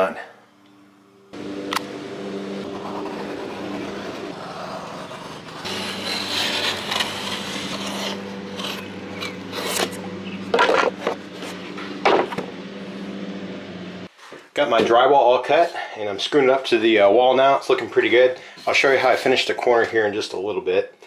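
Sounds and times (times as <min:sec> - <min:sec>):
steady low hum: 0:00.1 - 0:14.2
knife scoring drywall paper: 0:02.7 - 0:10.0.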